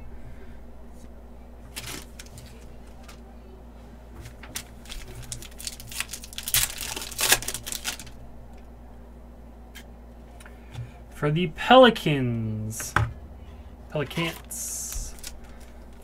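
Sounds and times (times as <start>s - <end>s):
foil wrapper crinkling and tearing: 1.7s - 3.2s, 4.3s - 8.2s, 14.1s - 16.0s.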